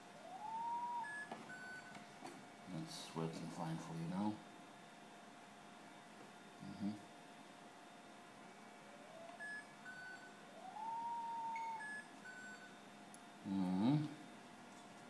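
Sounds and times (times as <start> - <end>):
rising electronic tone: 0.2 - 1.8, 9.0 - 12.5
short high beeps: 9.4 - 12.8.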